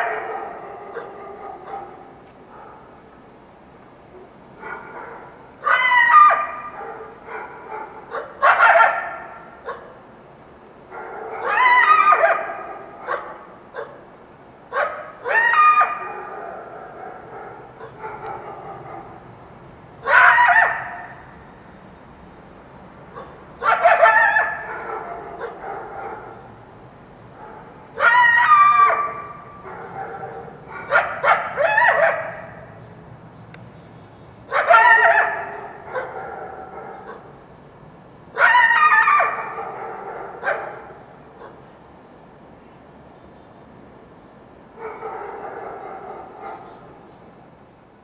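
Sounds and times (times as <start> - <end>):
coyote yelping: 20.0 - 21.2, 28.0 - 32.5, 34.5 - 36.2.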